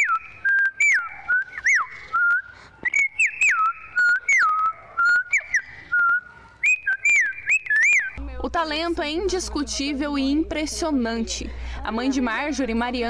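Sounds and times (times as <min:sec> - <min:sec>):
girl whistling bird song: 0:00.0 - 0:08.2.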